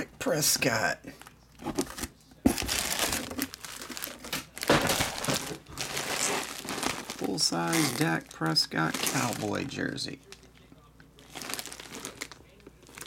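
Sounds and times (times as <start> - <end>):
plastic bag crinkling: 2.6 - 13.0.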